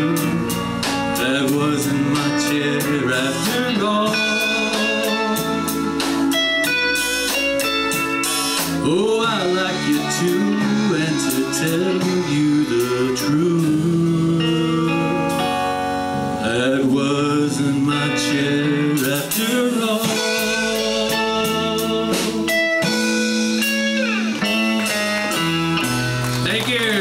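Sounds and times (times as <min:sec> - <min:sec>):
man singing: 0:00.0 - 0:06.4, 0:08.6 - 0:15.7, 0:16.3 - 0:23.0, 0:26.4 - 0:27.0
country band playing: 0:00.0 - 0:27.0.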